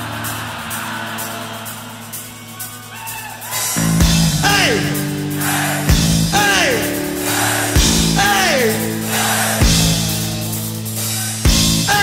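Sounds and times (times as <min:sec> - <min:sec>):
rock-style background music: 0:03.8 - 0:12.0.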